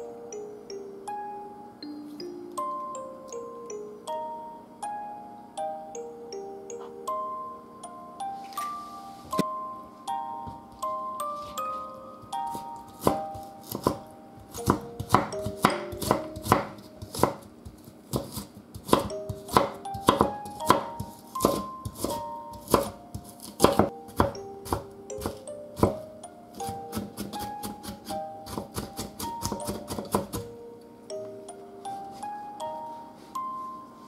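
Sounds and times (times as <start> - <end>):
soft mallet melody: 0.0 - 18.0, 18.8 - 34.0
knife chopping on wooden board: 12.5 - 30.5.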